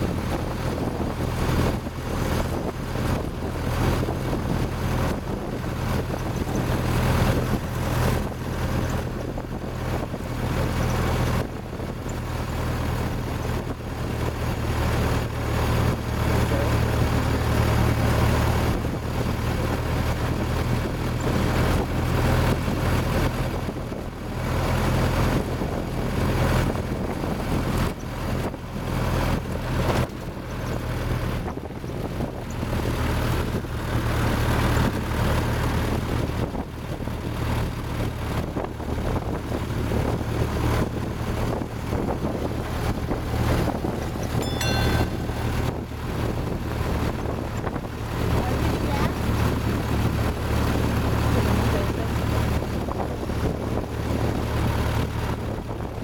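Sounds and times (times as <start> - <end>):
car engine running: 0.0 - 56.0
wind on microphone: 38.1 - 56.0.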